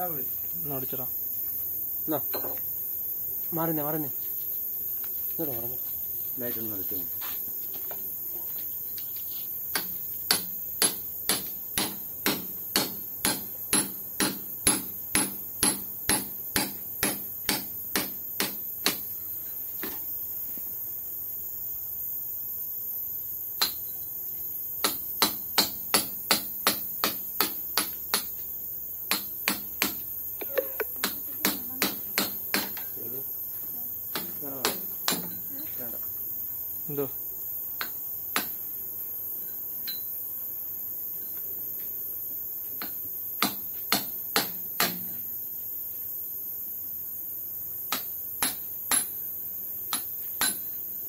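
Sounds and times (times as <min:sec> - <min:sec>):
hammer strikes: 0:09.7 - 0:19.1, 0:24.8 - 0:28.3, 0:29.1 - 0:30.0, 0:31.0 - 0:32.9, 0:34.1 - 0:35.4, 0:42.8 - 0:45.2, 0:47.9 - 0:49.1, 0:49.9 - 0:50.7.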